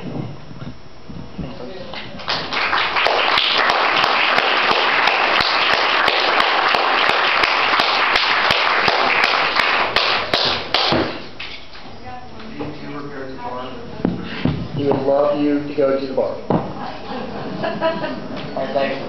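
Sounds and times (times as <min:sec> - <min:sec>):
crowd applauding: 0:02.2 - 0:11.2.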